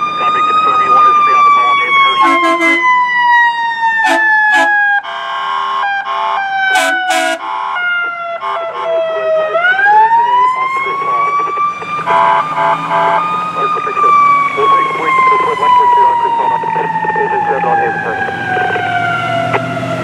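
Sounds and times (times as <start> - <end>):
siren sliding in pitch: 0.0 - 20.0
short horn blasts: 2.2 - 2.8, 4.0 - 5.5, 6.7 - 7.7.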